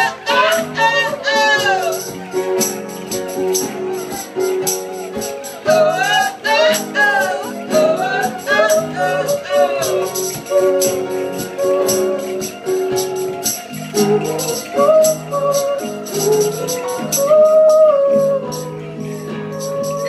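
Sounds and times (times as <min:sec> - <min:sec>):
woman singing: 0:00.0 - 0:02.8, 0:05.6 - 0:20.0
strummed acoustic guitar: 0:00.0 - 0:20.0.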